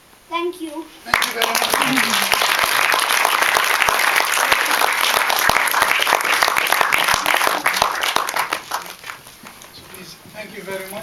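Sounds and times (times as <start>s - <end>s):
audience applauding: 1.1s - 9.8s.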